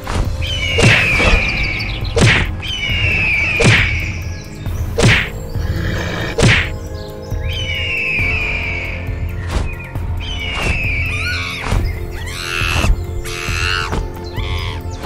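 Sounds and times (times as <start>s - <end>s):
background music: 0.0s - 15.0s
cartoon whacking blows: 6.4s - 6.7s.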